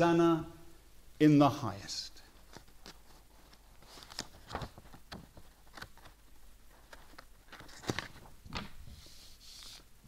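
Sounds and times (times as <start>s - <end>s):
paper rustling and pages turning: 2.4s - 9.9s.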